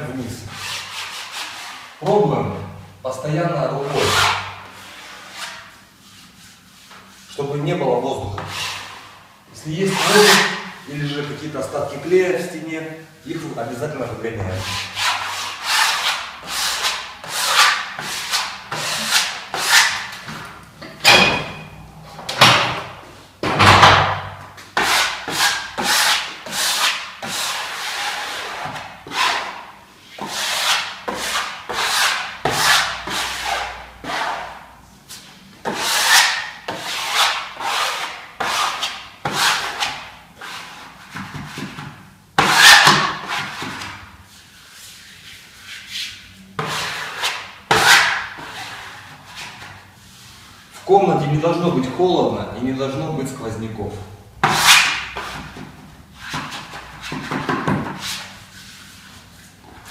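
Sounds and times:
spatula scraping wallpaper: 0.5 - 2.0, 3.8 - 7.4, 9.9 - 10.7, 14.6 - 20.4, 24.8 - 50.6, 54.4 - 59.9.

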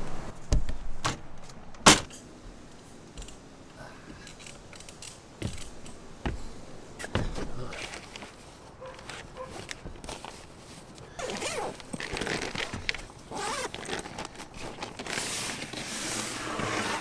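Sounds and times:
board bags knocking on roof rack: 7.1 - 7.7.

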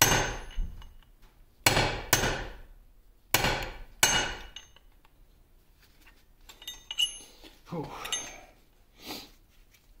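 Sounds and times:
hammer striking metal punch: 0.0 - 0.9, 1.6 - 2.7, 3.3 - 4.8.

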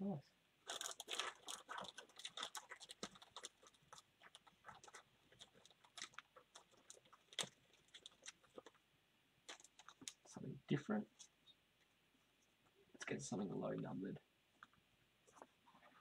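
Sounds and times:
trading cards clicking and crinkling: 0.6 - 8.8, 9.4 - 10.3.

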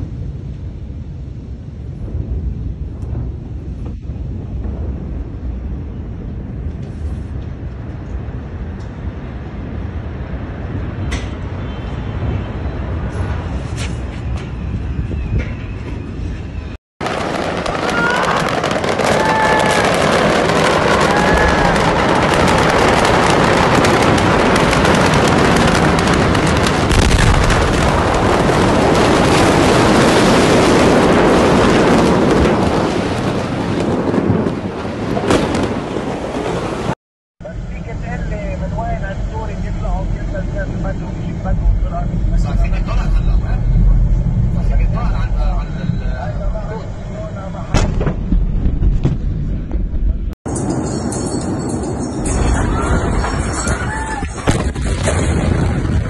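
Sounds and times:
fire roaring: 0.0 - 11.6, 16.6 - 51.0, 51.6 - 56.0
steady low rumble: 0.0 - 17.9, 19.7 - 53.4
fire crackling and popping: 17.0 - 37.0.

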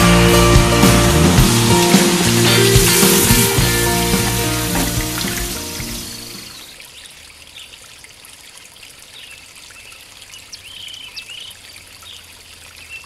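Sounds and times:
trickling water: 2.4 - 13.0
bird chirps: 9.2 - 12.2.

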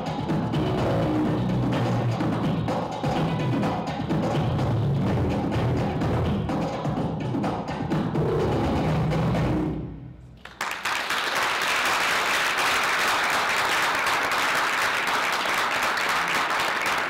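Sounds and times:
audience applauding: 10.4 - 17.0.

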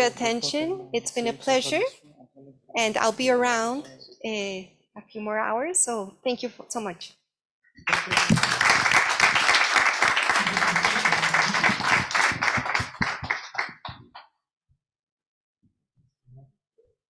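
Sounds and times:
audience applauding: 7.9 - 14.2.

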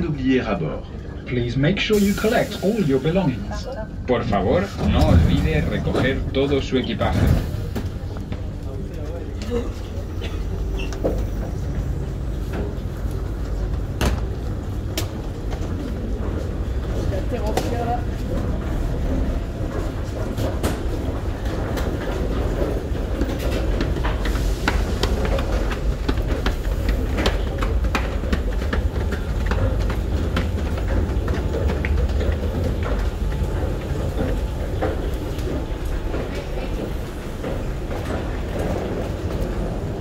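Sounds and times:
metro train rumble: 0.0 - 40.0
footsteps on stairs: 10.8 - 40.0.

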